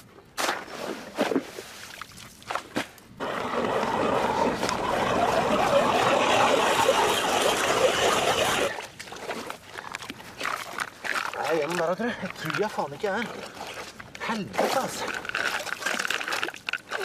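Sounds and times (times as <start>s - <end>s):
ice auger grinding through ice: 3.2s - 8.8s.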